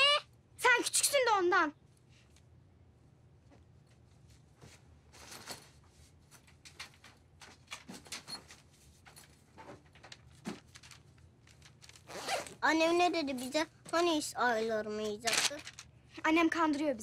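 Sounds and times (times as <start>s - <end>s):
cloth and bag rustling: 10.4s - 12.6s.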